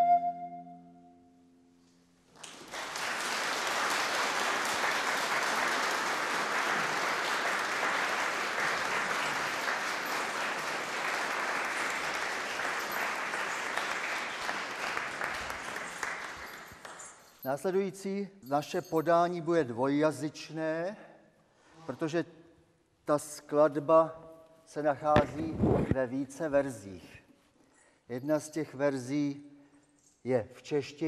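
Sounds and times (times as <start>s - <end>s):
wind instrument and lute note: 0.0s - 1.3s
audience applause: 2.4s - 17.0s.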